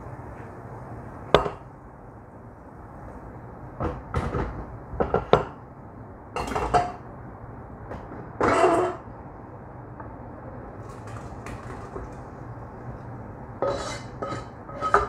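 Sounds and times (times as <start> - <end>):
metal cookware clanking: 6.4 - 7.0, 13.6 - 15.0.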